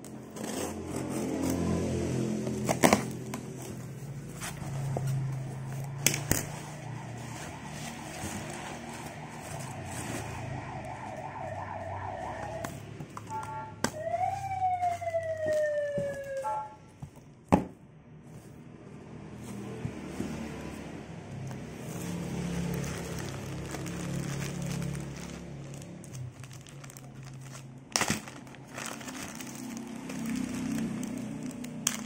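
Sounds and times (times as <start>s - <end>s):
siren wailing: 5.1s - 16.9s.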